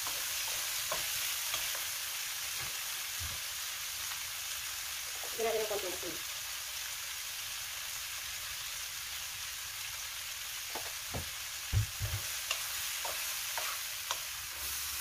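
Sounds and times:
spatula stirring in a pan: 0.0 - 2.9, 12.1 - 15.0
shrimp sizzling in a pan: 0.0 - 15.0.

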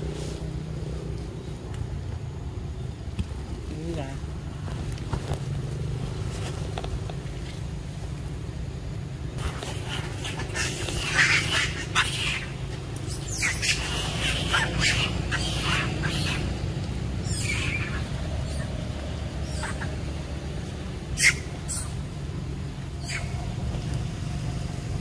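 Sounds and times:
macaques squealing and screeching: 9.4 - 24.7.

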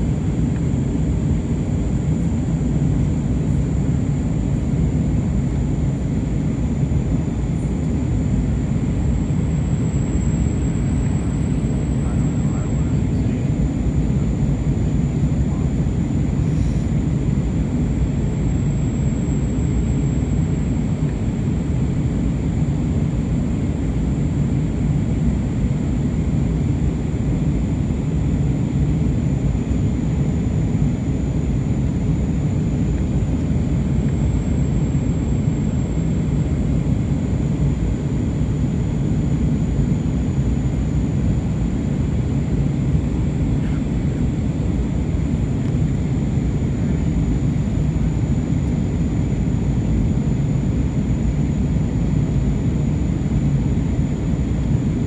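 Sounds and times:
airplane engine drone and airflow: 0.0 - 55.0
high-pitched whine: 6.9 - 14.1.

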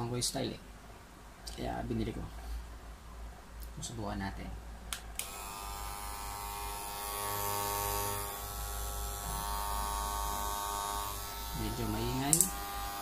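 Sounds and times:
hair clipper buzzing: 5.2 - 13.0.

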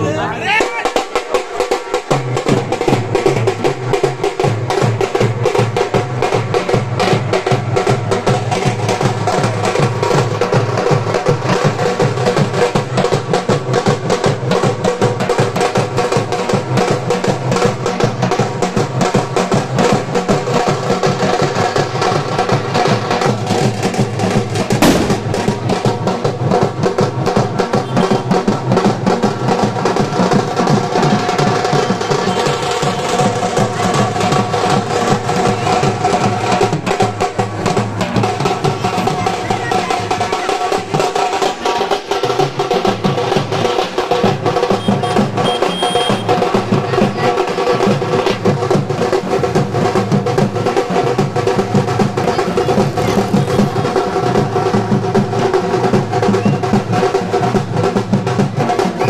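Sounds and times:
fast drumming on large drums: 0.0 - 59.0
sharp bang: 24.8 - 25.9.

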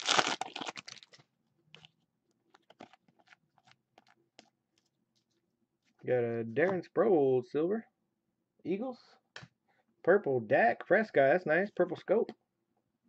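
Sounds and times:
foil wrapper crinkling: 0.0 - 1.2.

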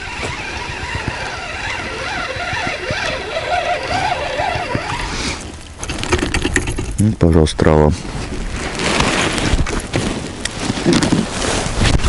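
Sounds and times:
fishing reel gear whine: 0.0 - 6.7.

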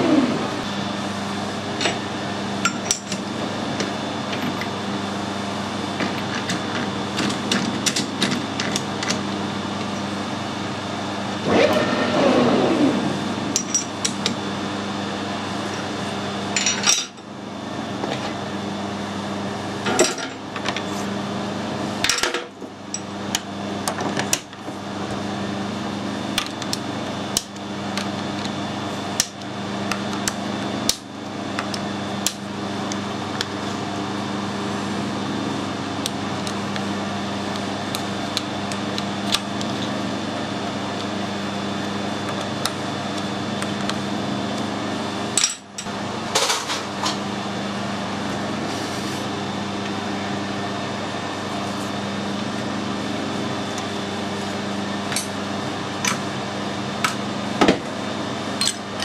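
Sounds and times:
metal lathe humming: 0.0 - 16.5.

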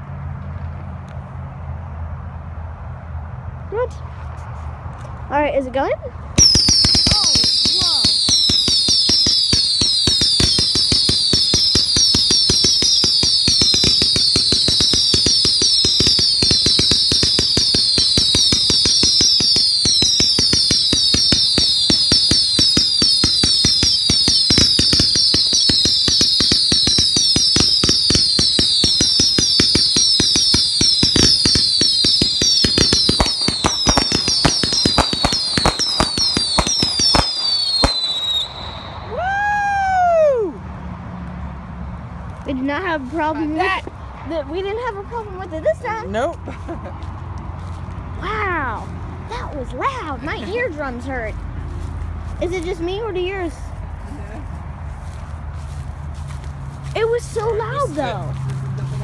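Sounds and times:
firework crackling pops: 6.4 - 39.5
firework whistles falling in pitch: 6.4 - 40.5.

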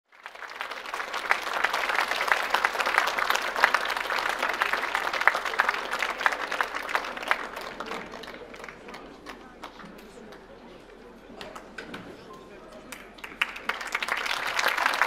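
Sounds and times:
audience applauding: 0.1 - 9.8, 12.9 - 15.0.

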